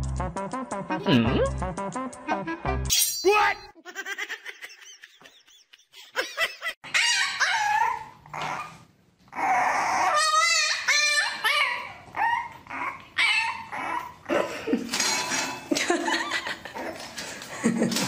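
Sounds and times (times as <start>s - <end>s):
puppy whining and yelping: 6.8s - 14.3s.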